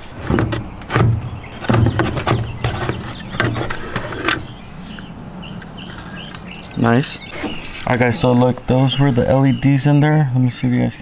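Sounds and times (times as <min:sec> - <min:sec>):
plastic scraping: 0:00.0 - 0:04.6.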